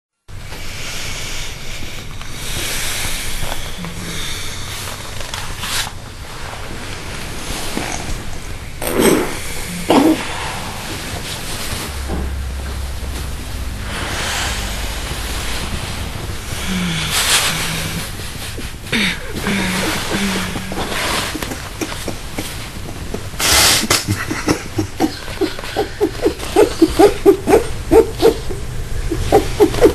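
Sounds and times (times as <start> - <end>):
low hum: 0.3 - 29.9
steady hiss: 0.3 - 29.9
person stifled laughter: 18.9 - 28.4.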